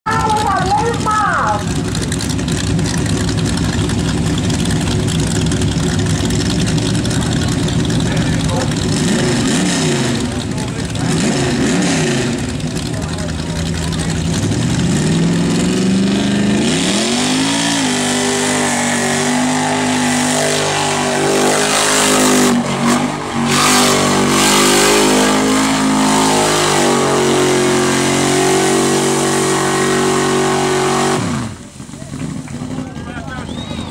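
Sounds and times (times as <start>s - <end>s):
engine revving hard: 8.0s - 31.6s.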